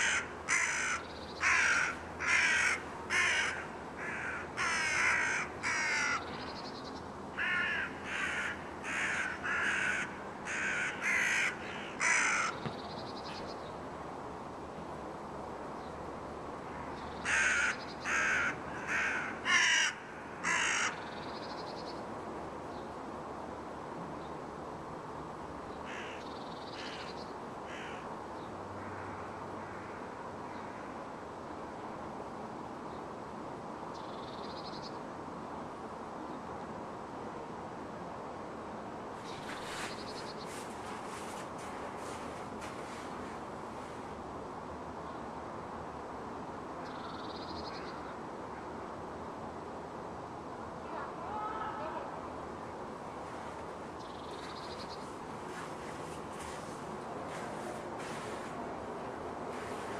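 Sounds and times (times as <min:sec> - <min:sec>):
crows cawing: 0:00.0 - 0:06.3, 0:07.4 - 0:12.7, 0:17.2 - 0:21.1, 0:25.8 - 0:26.2, 0:26.8 - 0:28.1, 0:28.8 - 0:30.9
distant city hum: 0:00.0 - 0:59.9.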